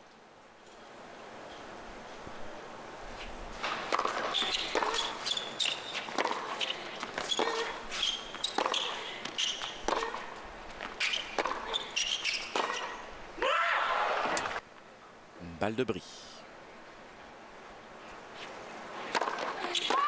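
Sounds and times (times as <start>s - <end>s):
racquets striking tennis ball: 3.6s - 13.1s, 19.0s - 20.0s
shoe squeaks: 4.2s - 10.2s, 11.0s - 13.0s.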